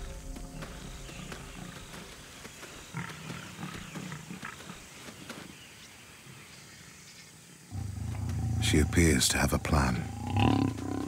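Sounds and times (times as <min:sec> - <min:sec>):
lions growling low: 0:07.7 - 0:11.0.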